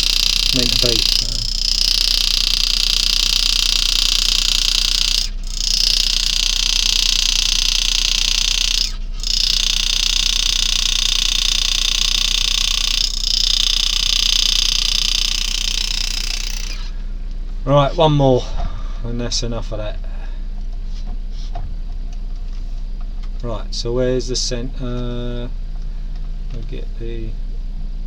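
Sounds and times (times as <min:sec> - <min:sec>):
engraving graver buzzing: 0:00.0 - 0:17.0.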